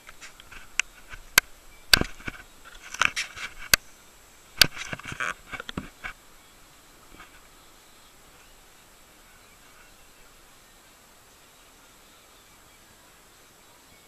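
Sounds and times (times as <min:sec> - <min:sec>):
rubbing: 0:04.6 - 0:06.2.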